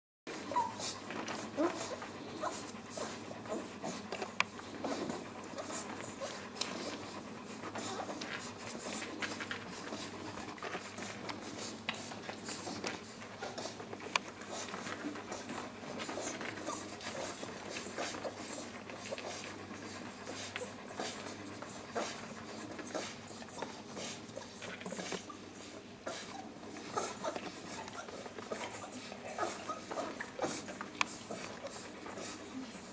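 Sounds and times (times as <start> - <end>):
dog panting: 0.3 - 32.9
puppies suckling: 0.3 - 32.9
faint puppy squeaks: 0.4 - 1.0.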